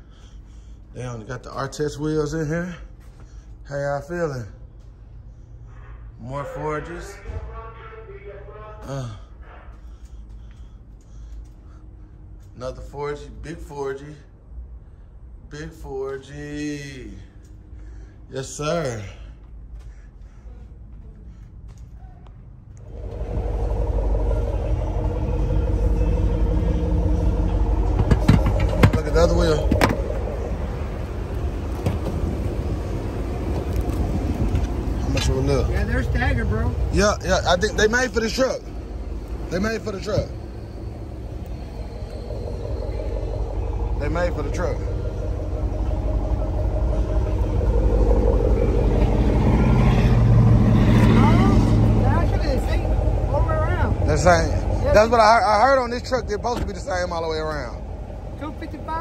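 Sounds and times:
faint steady hum: 0.0 - 59.0
vehicle engine rumbling: 14.7 - 59.0.

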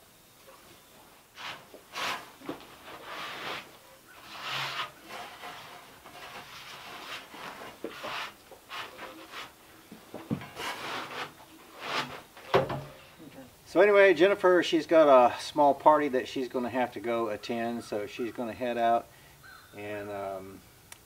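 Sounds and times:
shovel scraping sawdust: 1.4 - 9.6, 10.5 - 12.3.

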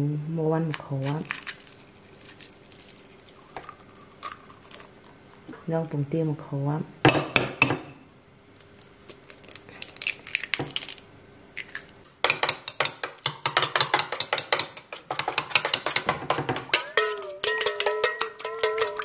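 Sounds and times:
eggshell cracking: 1.0 - 5.2, 8.6 - 15.2
spoon clinking against steel bowl: 12.3 - 19.0.

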